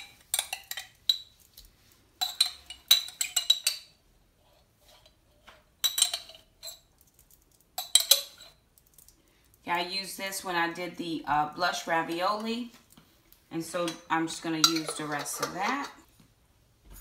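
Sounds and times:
spoon scraping glass jar: 0:13.7 - 0:16.1.

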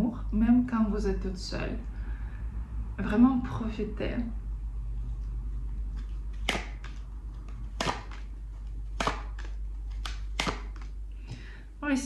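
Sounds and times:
cards snapping on a table: 0:06.4 - 0:08.3, 0:09.0 - 0:11.0.

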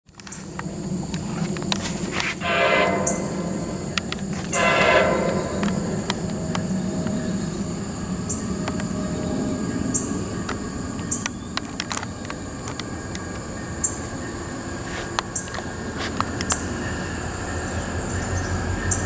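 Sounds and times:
steady low rumble: 0:00.4 - 0:14.6
locomotive air horn blasts: 0:02.2 - 0:07.4.

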